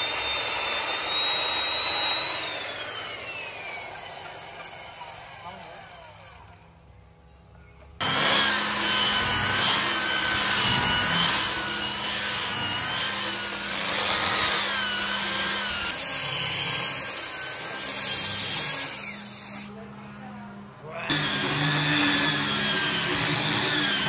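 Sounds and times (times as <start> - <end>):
angle grinder motor whine: 0.0 - 7.0, 8.0 - 24.0
sanding disc scratching wood: 8.0 - 19.7.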